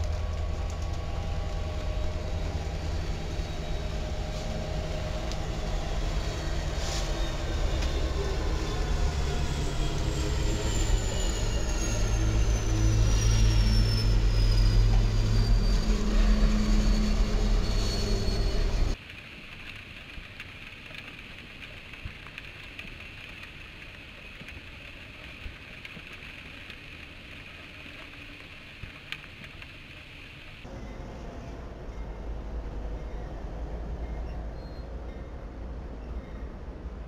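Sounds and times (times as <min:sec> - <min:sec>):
heavy rain: 0:00.0 - 0:10.5, 0:16.0 - 0:30.7
diesel locomotive engine: 0:00.0 - 0:19.0, 0:30.5 - 0:37.0
freight train rolling past: 0:00.0 - 0:19.0
high whine sliding down: 0:00.0 - 0:19.0.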